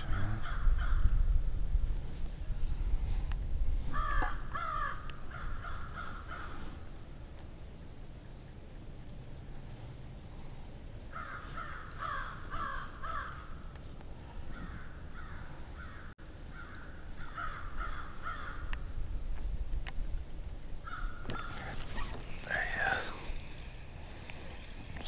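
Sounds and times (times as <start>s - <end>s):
crow cawing: 3.9s - 6.6s, 11.1s - 13.6s, 14.5s - 18.8s, 20.8s - 21.7s.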